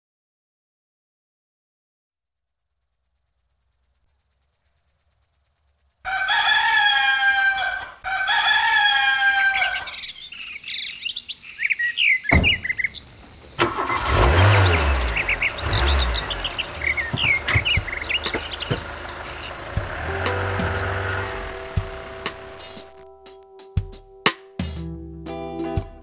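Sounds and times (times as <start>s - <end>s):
small birds chirping: 2.1s - 23.0s
insects trilling: 2.2s - 23.0s
rooster crowing: 6.1s - 10.2s, 14.7s - 22.9s.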